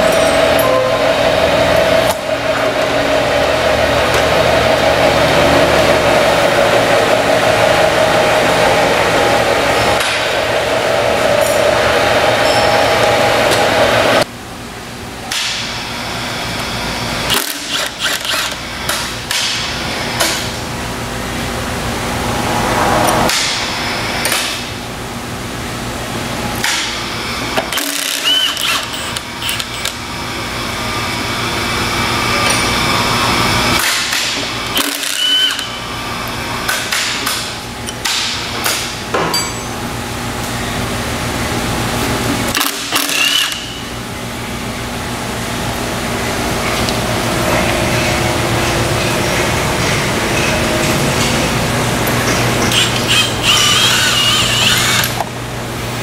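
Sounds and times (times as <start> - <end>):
impact wrench hammering: 17.3 - 20.6, 33.8 - 35.8, 36.7 - 39.9, 42.5 - 43.8.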